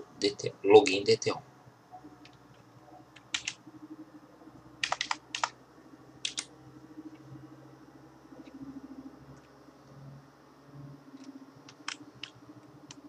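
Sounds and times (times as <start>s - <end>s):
keyboard key clicks: 3.2s - 3.6s, 4.8s - 5.5s, 6.2s - 6.5s, 11.7s - 13.0s.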